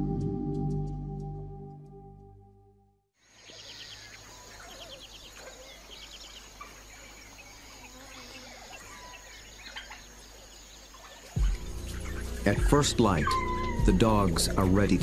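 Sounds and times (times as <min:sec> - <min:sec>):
bird chirps and trills: 0:03.4 - 0:15.0.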